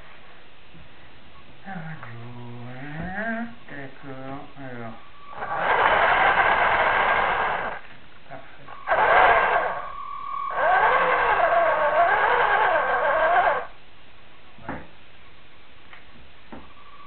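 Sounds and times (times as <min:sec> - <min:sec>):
toy tank motor whining: 0:05.3 - 0:07.8, 0:08.8 - 0:13.8.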